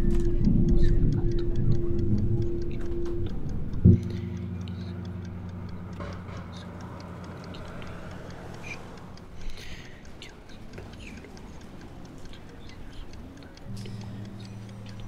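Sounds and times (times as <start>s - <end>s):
low sustained note: 0.0s - 9.2s
clock ticking: 0.0s - 15.0s.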